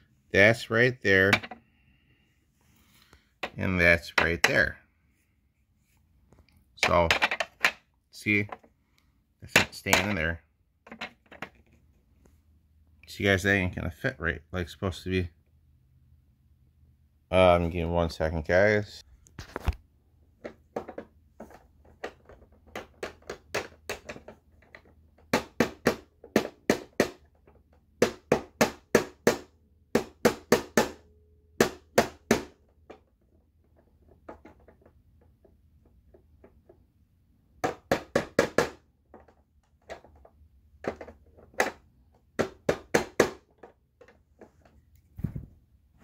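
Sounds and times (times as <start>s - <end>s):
sharp knocks on plastic part: 28.0s - 31.0s, 31.6s - 33.0s, 37.6s - 40.2s, 40.8s - 44.1s.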